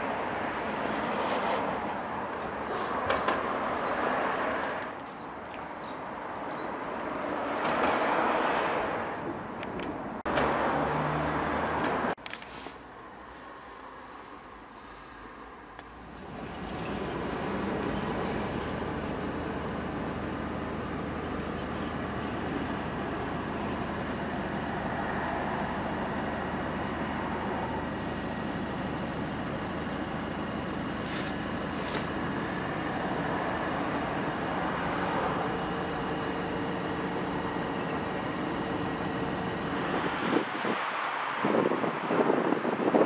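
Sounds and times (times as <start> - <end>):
car cabin hum with hiss: 12.2 - 40.8.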